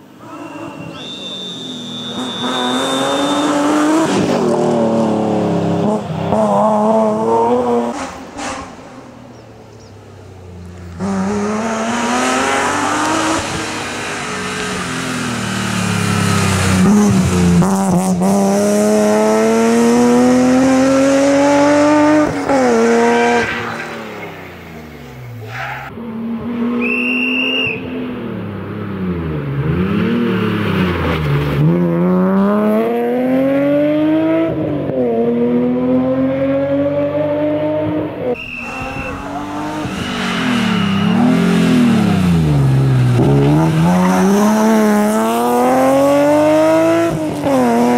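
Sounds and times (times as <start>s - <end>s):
rally car engine revving: 0.0s - 9.1s, 10.7s - 47.9s
tyre squeal: 0.2s - 4.2s, 23.3s - 25.9s, 38.4s - 42.6s.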